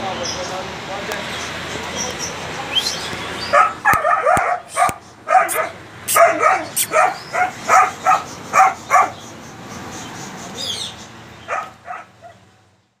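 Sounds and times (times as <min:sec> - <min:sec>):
small dog yapping: 0:03.5 - 0:09.2, 0:11.5 - 0:12.4.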